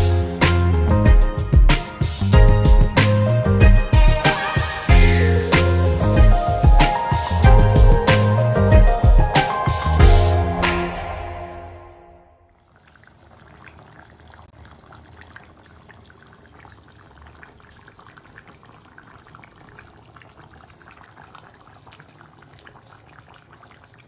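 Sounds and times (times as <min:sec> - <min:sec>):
background music: 0:00.0 - 0:12.4
curry bubbling in a clay pot: 0:12.5 - 0:24.0.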